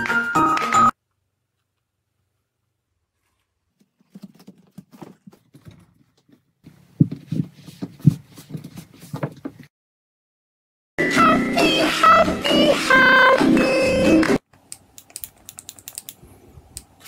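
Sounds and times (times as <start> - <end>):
knocks and scuffs on wooden floor: 4.0 - 9.7.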